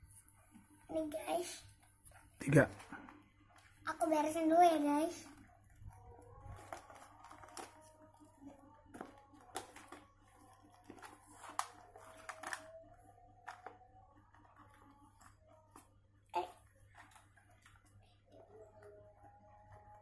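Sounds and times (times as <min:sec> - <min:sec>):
plastic pouch crinkling: 0:05.8 - 0:12.8
small items clicking on plastic: 0:05.9 - 0:12.8.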